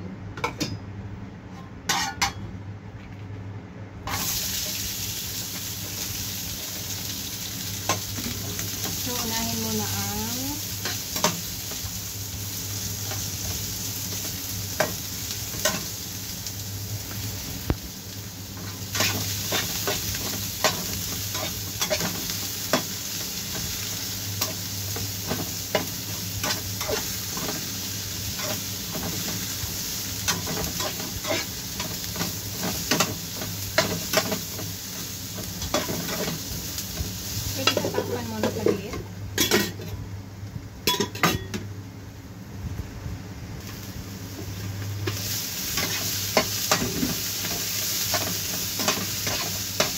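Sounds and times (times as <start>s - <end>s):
steady low hum: 0.0s - 47.6s
onions sizzling in a frying pan: 4.0s - 49.9s
spatula scraping a pan: 30.2s - 34.5s.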